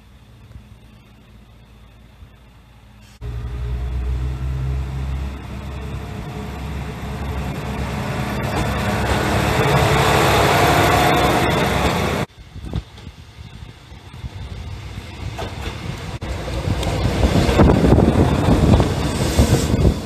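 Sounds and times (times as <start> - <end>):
diesel engine: 0.0 - 12.3
wheel and rail rumble: 0.0 - 20.0.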